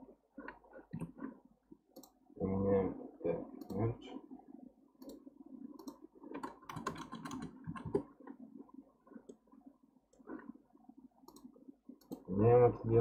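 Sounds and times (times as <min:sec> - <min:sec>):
mouse and keyboard clicks: 0:05.8 - 0:08.1.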